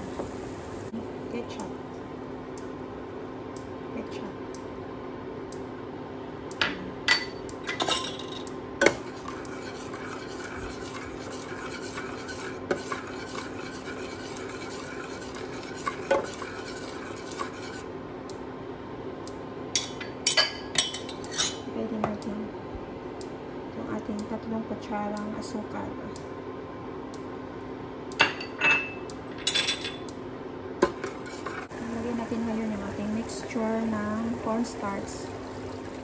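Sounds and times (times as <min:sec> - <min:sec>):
steady low hum: 0:00.0 - 0:36.0
metal spoon scraping saucepan: 0:09.0 - 0:17.8.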